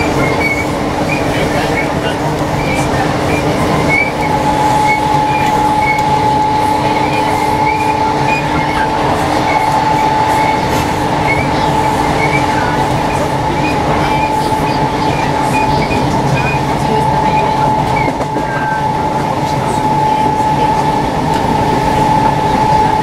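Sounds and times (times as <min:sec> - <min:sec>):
train rumbling on rails: 0:00.0 - 0:23.0.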